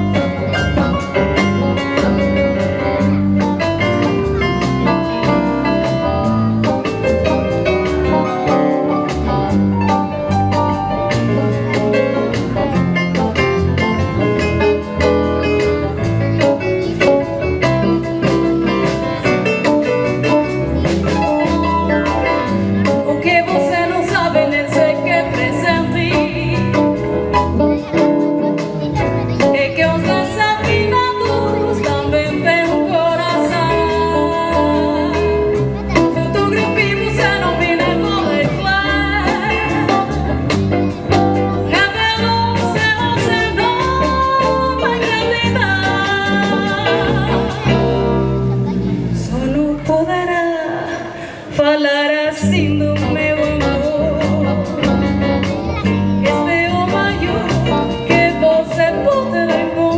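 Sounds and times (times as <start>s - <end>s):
drum kit beat: 0.0s - 51.6s, 52.4s - 59.9s
electric guitar: 0.0s - 59.9s
keyboard: 0.0s - 59.9s.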